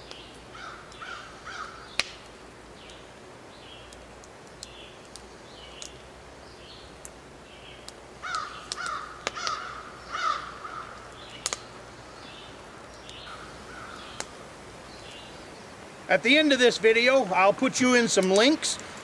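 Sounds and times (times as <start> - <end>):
small birds chirping: 0.0 - 17.2
crow cawing: 0.5 - 1.9, 8.2 - 11.2, 13.3 - 14.2.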